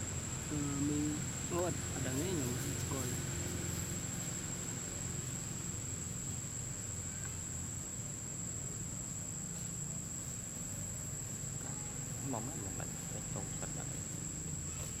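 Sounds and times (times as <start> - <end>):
insects droning high whine: 0.0 - 15.0.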